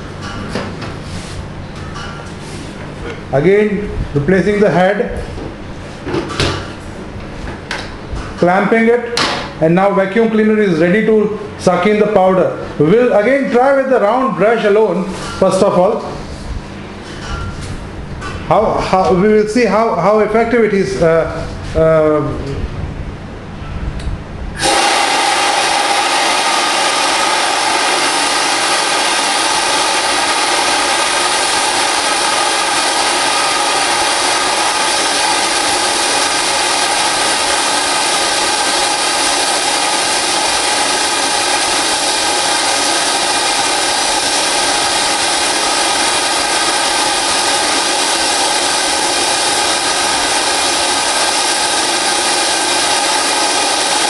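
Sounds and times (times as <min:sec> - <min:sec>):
vacuum cleaner sucking air: 0:24.6 - 0:54.0.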